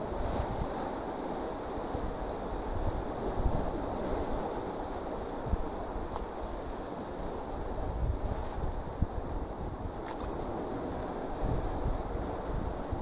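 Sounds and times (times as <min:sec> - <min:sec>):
wind buffeting microphone: 0:00.0 - 0:00.8, 0:01.8 - 0:04.6, 0:05.3 - 0:13.0
surf washing over rocks: 0:00.0 - 0:13.0.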